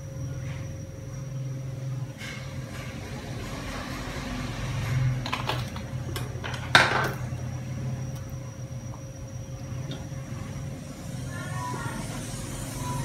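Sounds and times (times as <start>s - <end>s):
steady low hum: 0.0s - 13.0s
kitchenware clinks and knocks: 5.2s - 7.2s.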